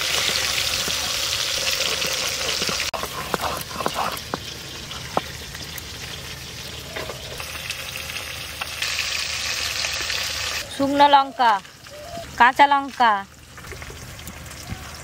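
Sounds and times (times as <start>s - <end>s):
spices ground on stone slab: 0.0s - 5.6s
fish frying in oil: 0.0s - 15.0s.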